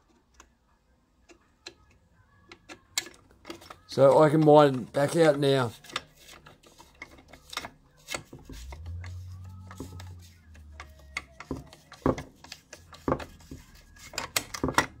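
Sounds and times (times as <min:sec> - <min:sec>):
screwdriver metal clicks and taps: 0:01.2 - 0:04.5, 0:09.7 - 0:13.3, 0:14.0 - 0:15.0.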